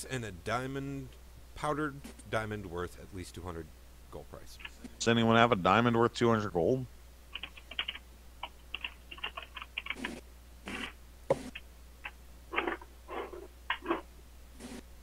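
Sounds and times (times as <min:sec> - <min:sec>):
keyboard typing: 0:07.3 - 0:14.0.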